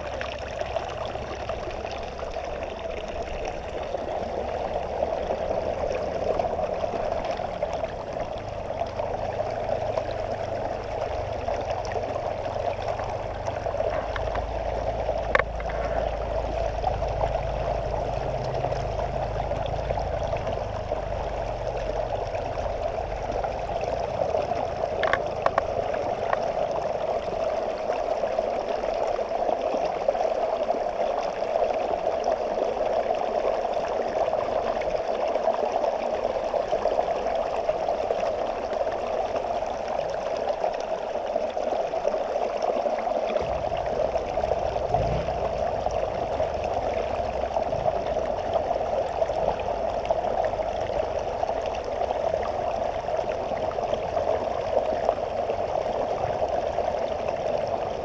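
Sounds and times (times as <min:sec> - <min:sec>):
river flowing over rocks: 0:00.0 - 0:58.0
deep low rumble: 0:00.5 - 0:27.4, 0:43.4 - 0:51.4.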